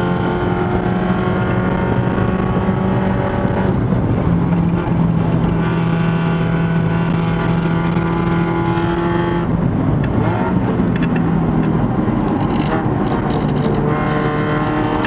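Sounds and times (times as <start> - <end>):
race car engine at high revs: 0.0 - 15.0.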